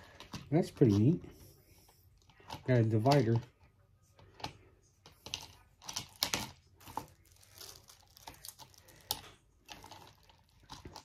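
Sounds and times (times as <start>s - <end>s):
plastic packaging crinkling: 5.3s - 11.0s.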